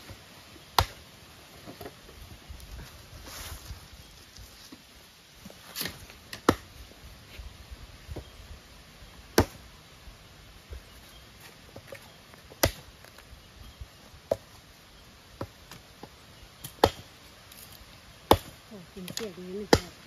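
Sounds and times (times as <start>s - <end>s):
machete chopping firewood: 0.7s - 1.0s, 5.8s - 6.7s, 9.3s - 9.6s, 12.5s - 12.9s, 15.4s - 20.0s.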